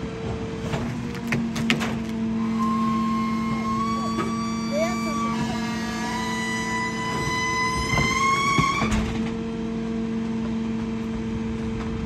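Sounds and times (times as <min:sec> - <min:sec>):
truck engine drone: 0:00.0 - 0:12.0
garbage truck packer squealing: 0:00.6 - 0:09.4.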